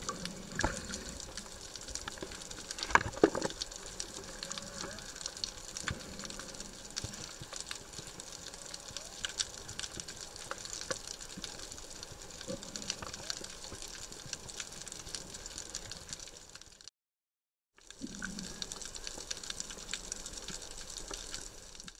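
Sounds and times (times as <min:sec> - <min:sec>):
water wash: 0:00.0 - 0:16.2
crackle of reef clicks: 0:00.0 - 0:16.9, 0:17.8 - 0:21.9.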